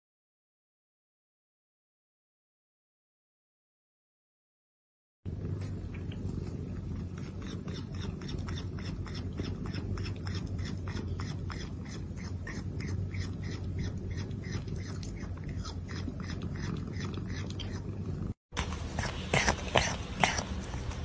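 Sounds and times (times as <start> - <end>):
steady low hum: 5.3 - 21.0.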